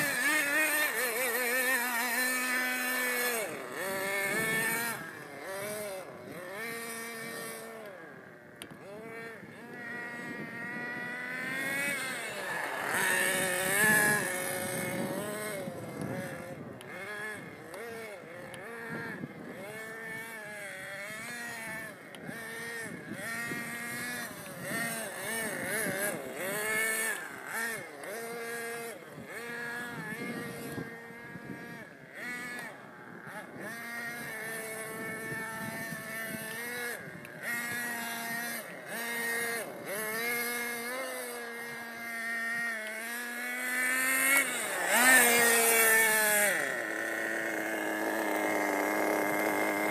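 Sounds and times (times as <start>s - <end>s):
model car engine revving: 0.0s - 49.9s.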